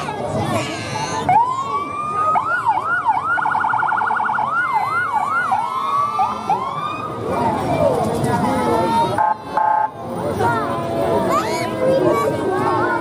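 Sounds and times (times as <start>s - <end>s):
fire engine electronic siren: 1.3s - 7.3s, 9.2s - 9.9s.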